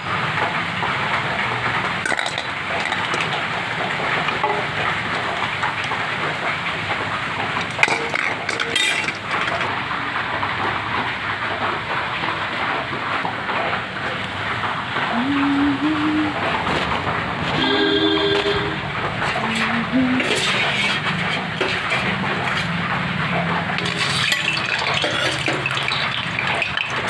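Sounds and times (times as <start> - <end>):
heavy rain falling: 0.0 - 27.0.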